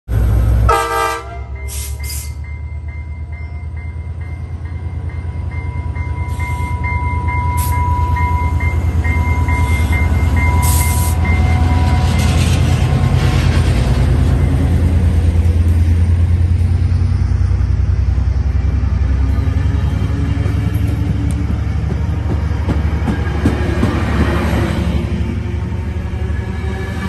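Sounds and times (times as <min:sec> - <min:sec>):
locomotive horn blast: 0:00.6 - 0:02.4
locomotive bell ringing: 0:01.3 - 0:13.2.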